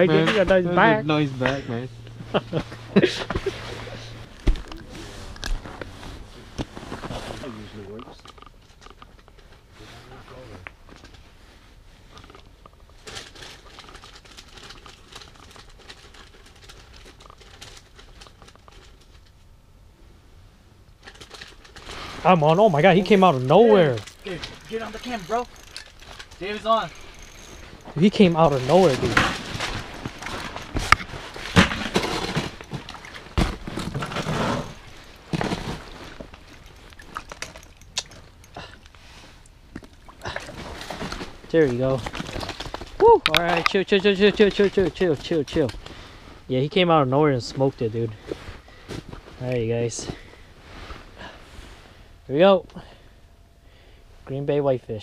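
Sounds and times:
rustling of clothing and gear: 0.0s - 19.2s, 21.2s - 52.1s
jacket rustling: 21.9s - 39.4s.

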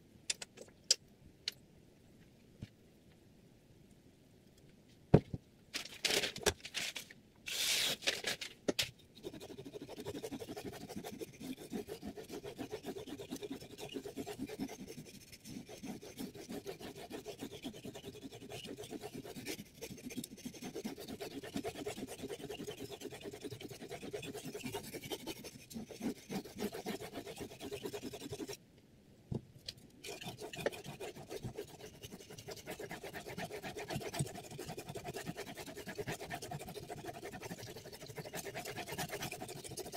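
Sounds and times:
knife scraping on whetstone: 9.2s - 28.6s, 30.0s - 39.9s.

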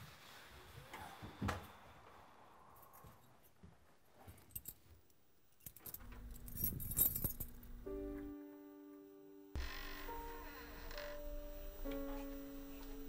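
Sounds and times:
keys jangling at a door lock: 5.6s - 7.7s.

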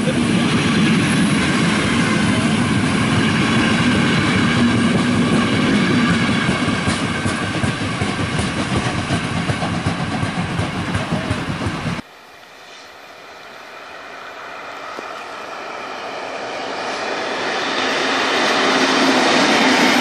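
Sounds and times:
train wheels clattering over rails: 0.3s - 12.0s.

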